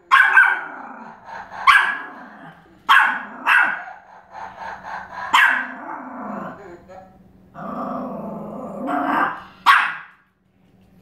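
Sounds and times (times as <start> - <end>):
dog yapping: 0.0 - 0.7, 1.6 - 2.3, 2.9 - 4.0, 5.3 - 5.8.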